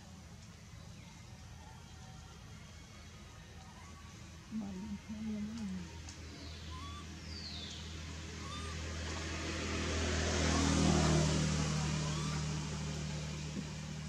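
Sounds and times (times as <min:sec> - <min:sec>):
vehicle engine passing by: 0:05.0 - 0:14.0
faint high squeaks: 0:11.9 - 0:12.6.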